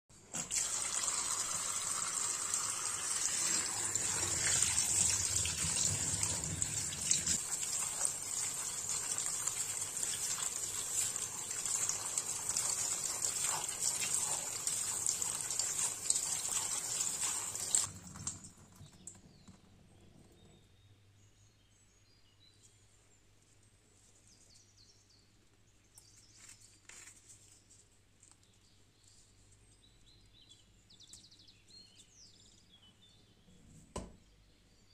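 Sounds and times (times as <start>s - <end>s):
tap water splashing into colander: 0.3s - 18.5s.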